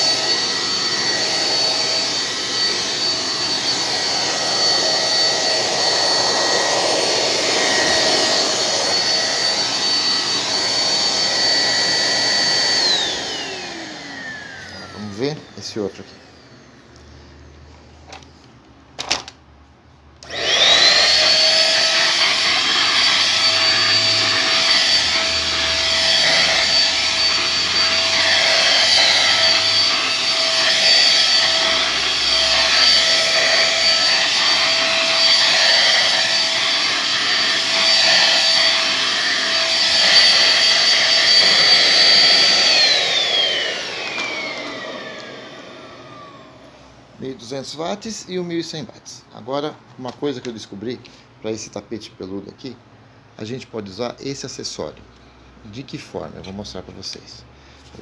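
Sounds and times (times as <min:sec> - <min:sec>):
vacuum suction hiss on rug: 0:00.0 - 0:16.8, 0:20.3 - 0:47.1
vacuum cleaner motor whine: 0:00.0 - 0:17.2, 0:20.2 - 0:47.1.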